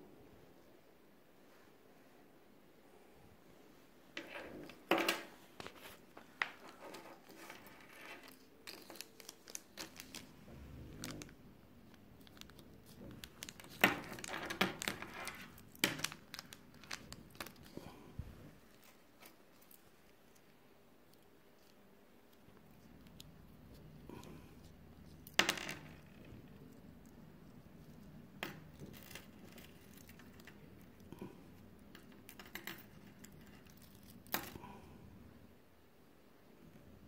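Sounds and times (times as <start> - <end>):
plastic bag crinkling: 5.4 - 17.8.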